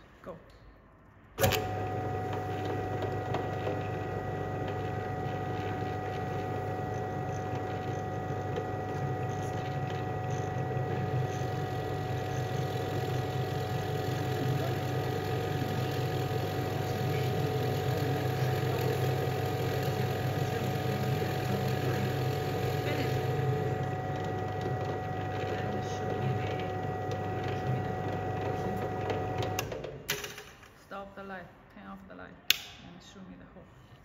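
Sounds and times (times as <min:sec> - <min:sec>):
drill press cutting wood: 0:01.4 - 0:30.0.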